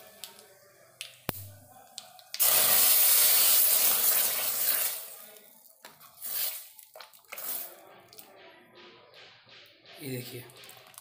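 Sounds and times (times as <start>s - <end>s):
hot oil sizzling: 2.3s - 5.3s, 6.0s - 7.7s.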